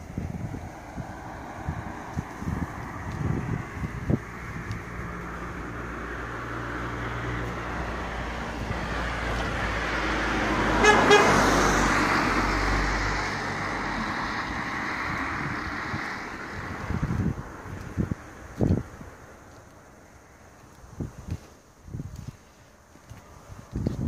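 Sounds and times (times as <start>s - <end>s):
car passing: 0.0s - 20.6s
car horn toot: 10.8s - 11.4s.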